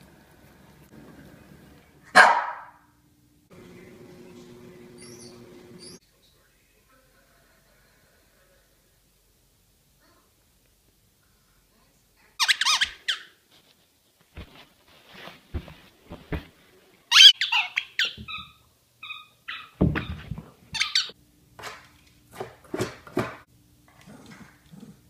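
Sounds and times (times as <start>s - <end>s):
dog toy squeaks: 12.4s - 13.3s, 17.1s - 20.2s, 20.8s - 21.1s.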